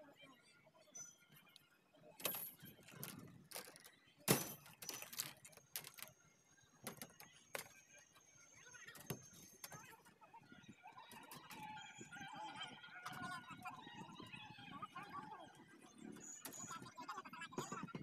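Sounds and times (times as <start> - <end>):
plastic pipes clinking on rebar: 2.2 - 6.2, 6.8 - 7.9.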